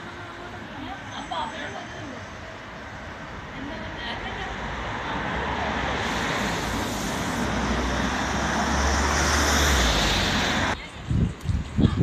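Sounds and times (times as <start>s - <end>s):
vehicle passing on street: 0.0s - 10.8s.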